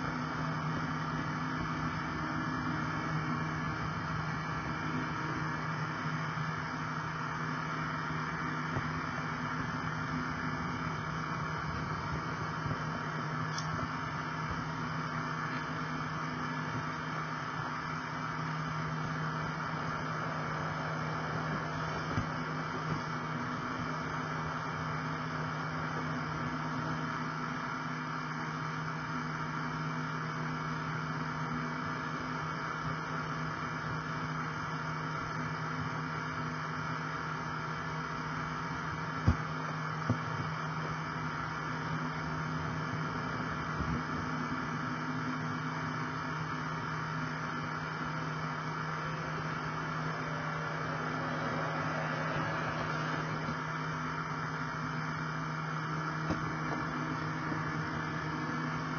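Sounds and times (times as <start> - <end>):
model train motor hum: 47.3 - 55.6.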